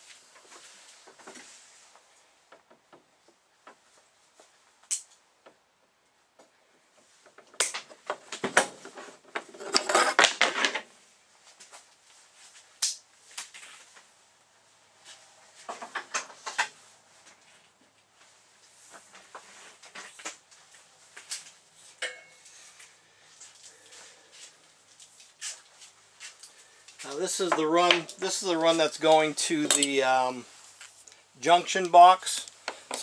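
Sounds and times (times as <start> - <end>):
tools clicking and knocking: 29.6 - 30.0.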